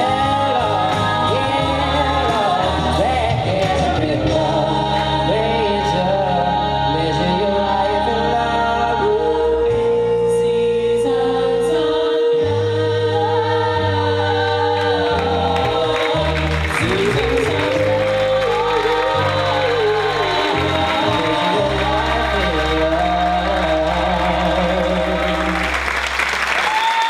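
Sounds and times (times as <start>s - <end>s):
vocal group singing in harmony: 0.0s - 26.8s.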